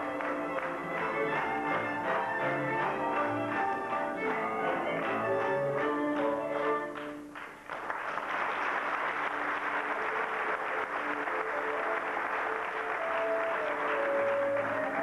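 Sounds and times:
audience applause: 0:00.0 - 0:15.0
music: 0:00.0 - 0:15.0.

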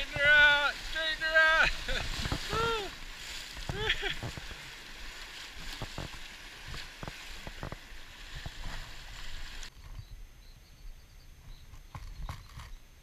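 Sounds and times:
river water rushing and splashing: 0:00.0 - 0:09.7.

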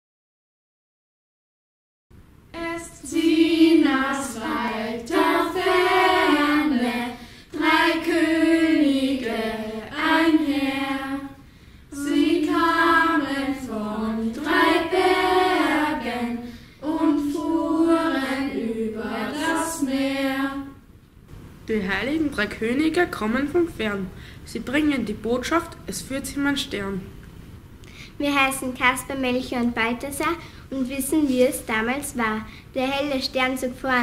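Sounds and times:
children singing together: 0:02.6 - 0:20.8.

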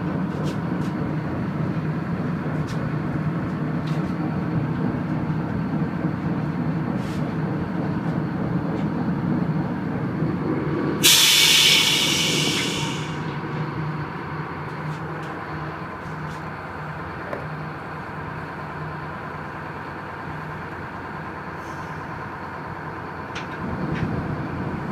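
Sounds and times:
boat engine droning: 0:00.0 - 0:24.9
loud hiss: 0:11.0 - 0:13.6.

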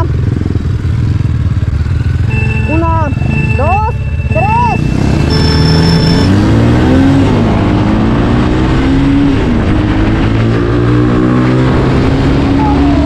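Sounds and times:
motorcycle accelerating hard: 0:04.6 - 0:13.0.

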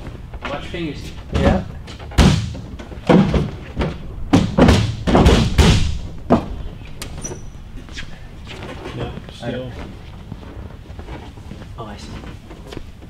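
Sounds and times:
engine cowl thumps and knocks: 0:01.3 - 0:06.7.

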